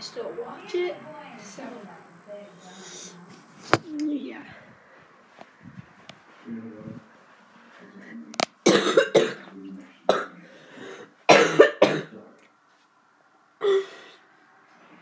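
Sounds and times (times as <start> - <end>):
girl coughing: 8.7 - 9.4, 10.1 - 10.3, 11.3 - 12.1, 13.6 - 14.0.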